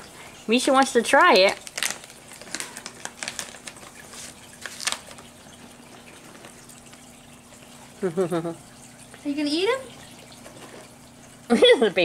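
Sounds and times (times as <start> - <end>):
plastic pouch crinkling: 0.8 - 7.1.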